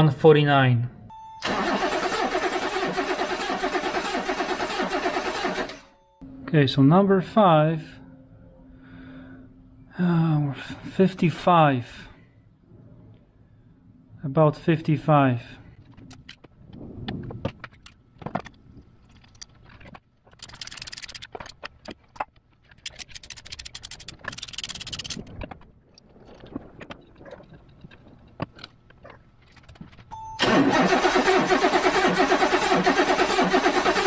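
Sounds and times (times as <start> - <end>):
starter cranking engine: 1.4 - 5.9, 30.4 - 34.0.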